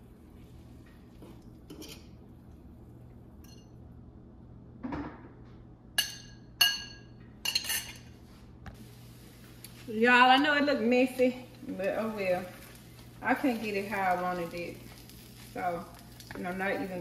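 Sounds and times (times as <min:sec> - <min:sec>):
utensils and dishes clinking: 0:06.0 - 0:08.1.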